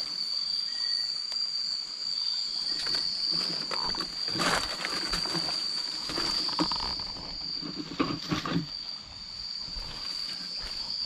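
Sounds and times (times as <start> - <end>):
high-pitched insect chorus: 0.0 - 11.0
knocks and rustles: 2.9 - 8.8.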